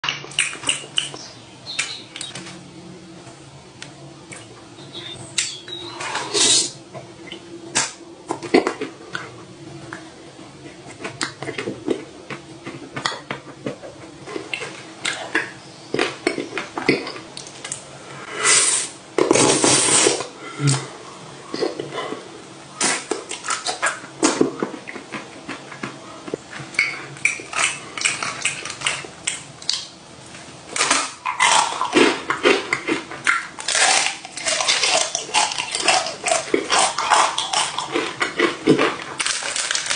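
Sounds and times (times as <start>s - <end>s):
ice cream bar crunching: 30.7s - 39.9s
waffle cone crunching: 30.7s - 39.9s.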